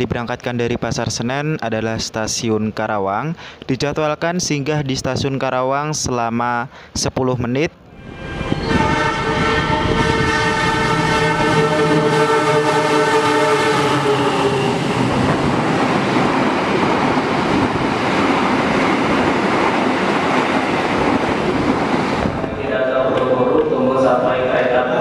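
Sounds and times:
train horn blast: 7.9 - 15.1
train carriages rolling past: 7.9 - 25.0.

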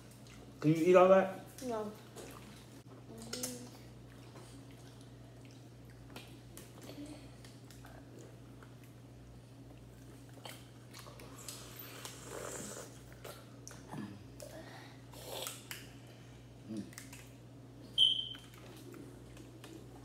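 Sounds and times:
chewing and swallowing: 1.5 - 14.5, 18.3 - 20.0
sharp high-pitched squeak: 18.0 - 18.4.

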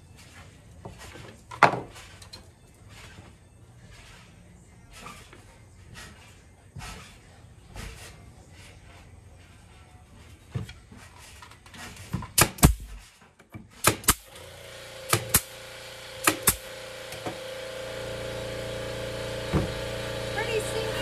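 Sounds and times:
music: 0.0 - 12.8
nail gun firing: 12.3 - 13.0, 13.8 - 14.4, 15.0 - 15.6, 16.2 - 17.4.

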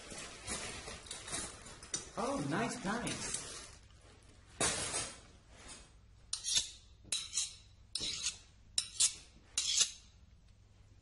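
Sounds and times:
metal blade scraping: 6.3 - 10.1.

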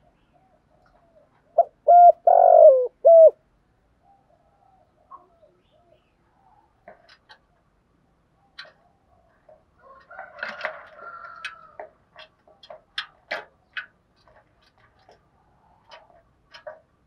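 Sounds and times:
dove cooing: 0.0 - 3.4.

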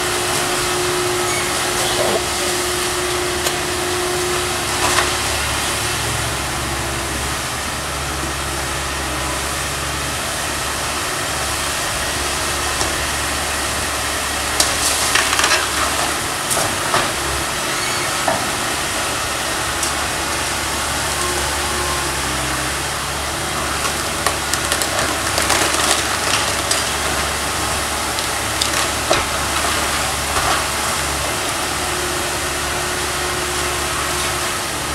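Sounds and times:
excavator diesel engine running: 0.0 - 34.9
wood cracking and snapping: 14.6 - 17.2, 23.7 - 30.9.

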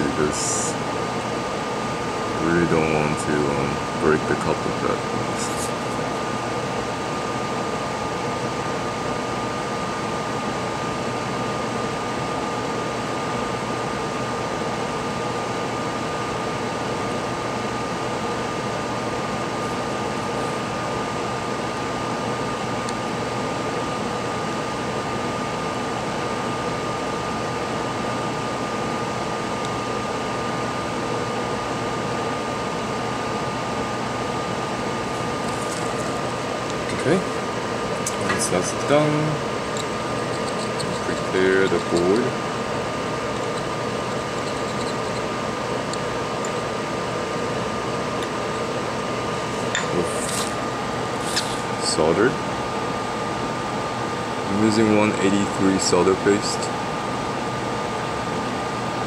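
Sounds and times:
small fan whirring: 0.0 - 59.0.

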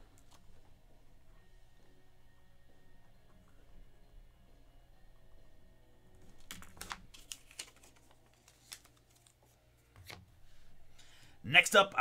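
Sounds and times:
faint room hum: 0.0 - 12.0.

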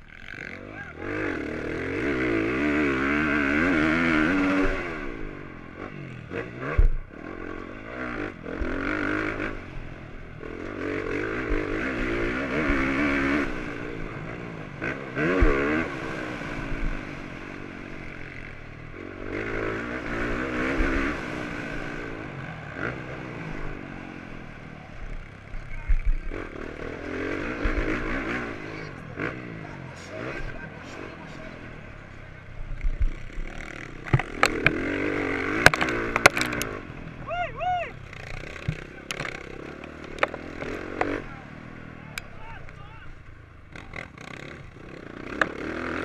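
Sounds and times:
motorcycle engine revving: 0.0 - 46.0
sharp thumps: 6.7 - 7.6, 15.3 - 16.0, 32.6 - 36.8, 38.1 - 41.2.

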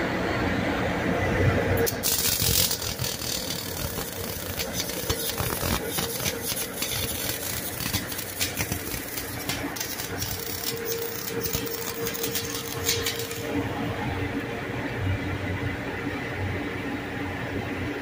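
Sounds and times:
welding arc sizzling and popping: 1.8 - 13.9.

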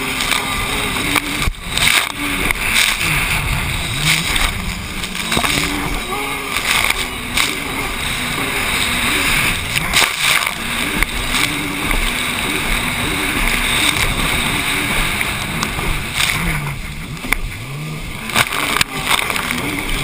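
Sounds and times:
wind rush: 0.0 - 17.0
jet ski engine: 0.0 - 20.0
hull knocking on waves: 8.8 - 17.4.

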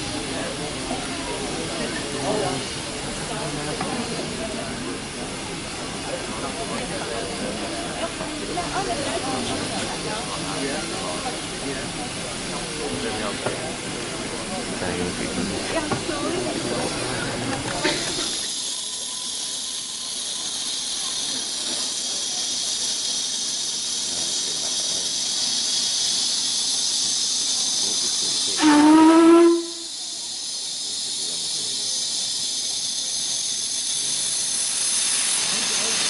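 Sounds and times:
steam hissing: 0.0 - 36.0
steam locomotive whistle: 28.4 - 30.2.

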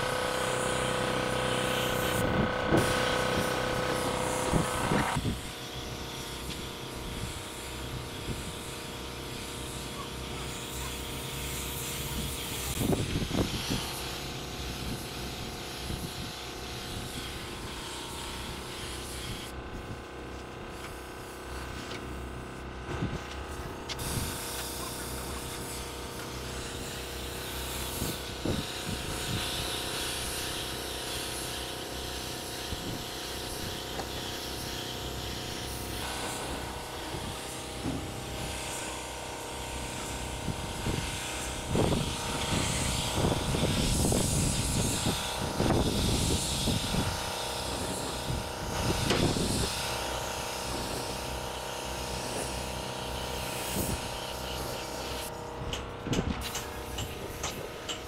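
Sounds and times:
steady machine hum: 0.0 - 58.0
spray gun hissing: 0.2 - 5.1, 23.6 - 55.3.

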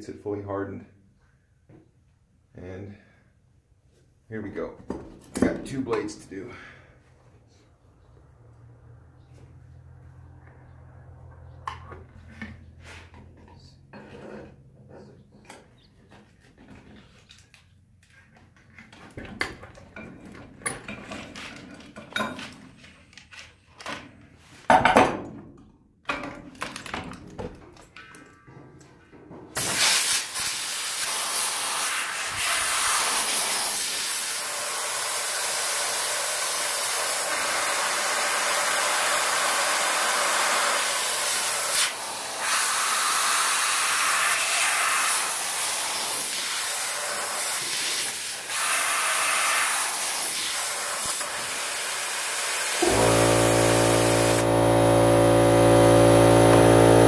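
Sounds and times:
compressed air hissing: 29.6 - 54.6
motor humming: 52.8 - 57.0.

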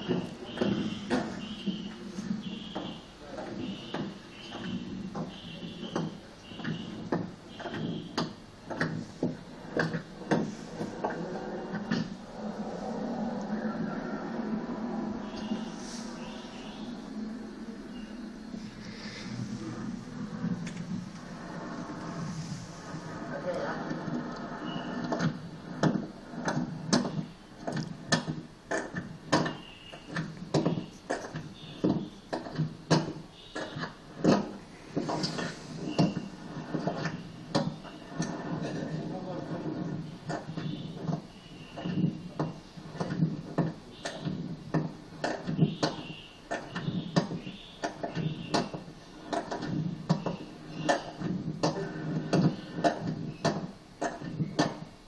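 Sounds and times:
sharp knocks or clicks: 0.0 - 12.2, 24.8 - 54.9
faint steady background noise: 0.0 - 55.0
low pitched pulses: 7.8 - 27.4.

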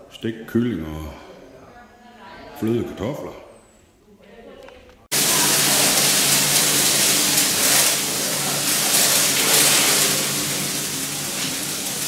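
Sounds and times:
fan whooshing: 5.1 - 12.0.

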